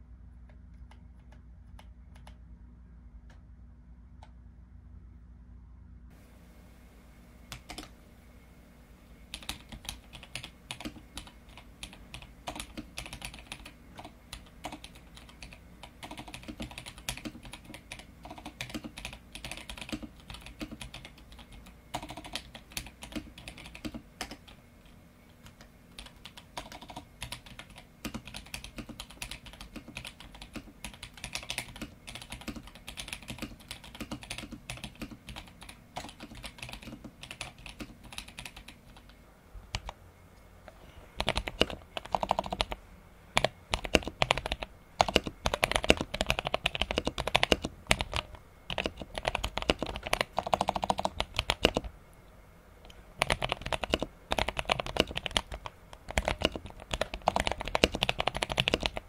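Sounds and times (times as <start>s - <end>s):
mechanical keyboard keystroke clacks: 43.4s - 51.9s, 53.2s - 59.0s.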